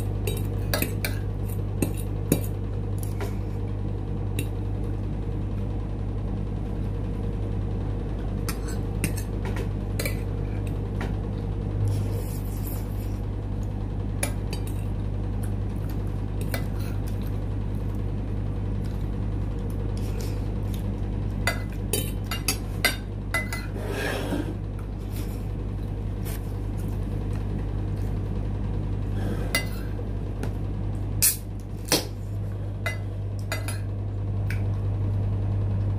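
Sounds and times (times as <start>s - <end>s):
steady low hum: 0.0s - 35.9s
fork scraping a plate: 11.9s - 13.2s, 23.4s - 25.4s, 29.2s - 29.9s.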